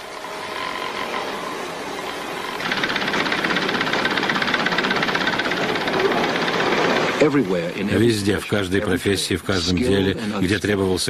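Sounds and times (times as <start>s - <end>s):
industrial sewing machines clattering: 0.0s - 8.0s.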